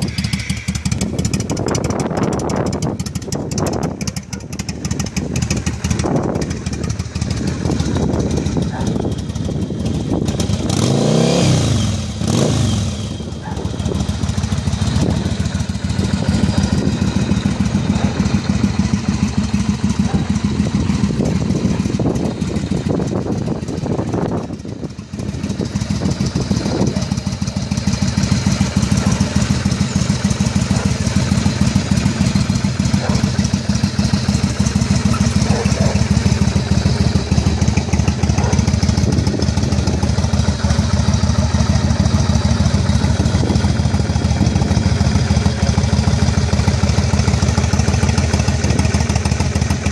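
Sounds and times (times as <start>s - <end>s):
motorcycle engine revving and idling: 0.0s - 49.9s.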